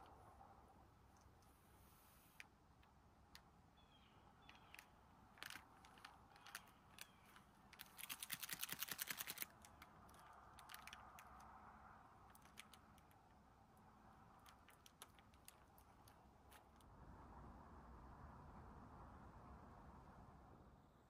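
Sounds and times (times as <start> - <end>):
small clicks and taps: 2.4 - 3.6, 4.4 - 11.5, 12.3 - 13.4, 14.3 - 16.9
rapid even clicking: 4.4 - 11.5, 12.3 - 13.5.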